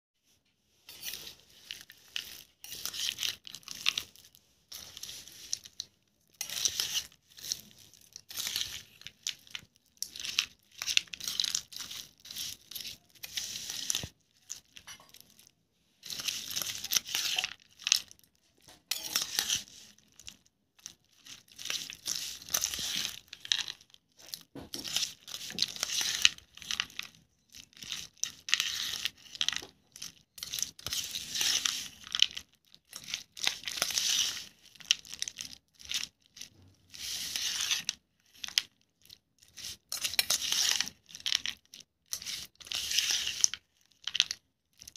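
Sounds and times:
spoon scraping steel bowl: 0:00.9 - 0:05.7, 0:06.4 - 0:08.9, 0:18.9 - 0:19.9, 0:39.6 - 0:41.0.

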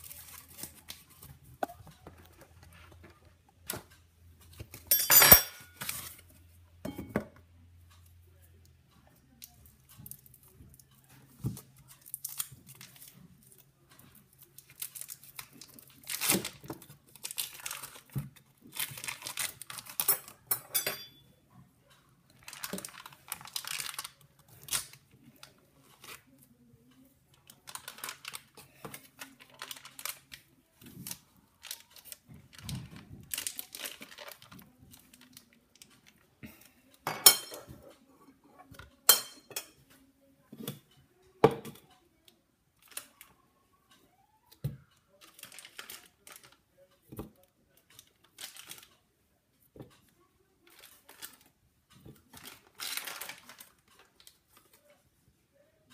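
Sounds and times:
foil wrapper crinkling and tearing: 0:00.0 - 0:01.1, 0:12.0 - 0:13.2, 0:14.6 - 0:20.4, 0:22.4 - 0:25.0, 0:27.5 - 0:30.4, 0:31.0 - 0:35.6, 0:45.2 - 0:46.6, 0:48.3 - 0:48.9, 0:52.3 - 0:54.3.

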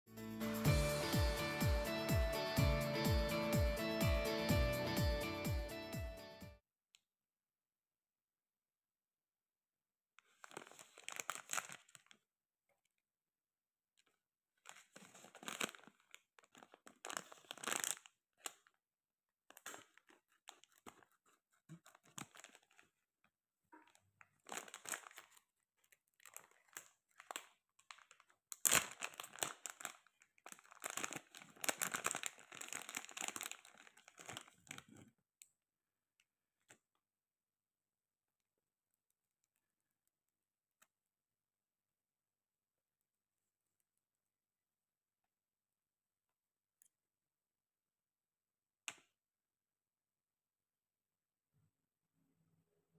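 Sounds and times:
plastic pouch crinkling and tearing: 0:10.2 - 0:12.2, 0:14.6 - 0:18.8, 0:19.5 - 0:23.0, 0:23.8 - 0:35.0.

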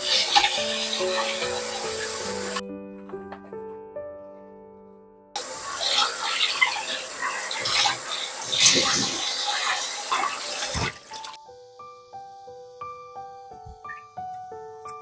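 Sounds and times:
tap water pouring and splashing: 0:00.0 - 0:02.6, 0:05.4 - 0:11.4
soft piano music: 0:00.0 - 0:15.0.

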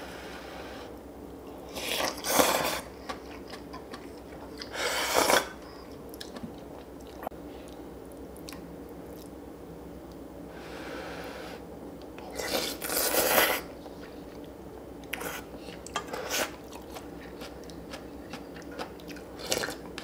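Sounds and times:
close chewing: 0:01.9 - 0:07.8, 0:15.1 - 0:20.0.

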